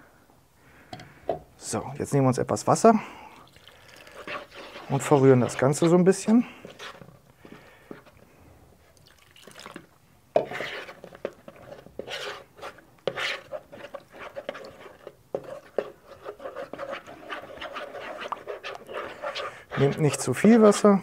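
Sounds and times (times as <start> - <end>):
spoon stirring in plastic bowl: 3.4 - 8.2, 8.9 - 20.8.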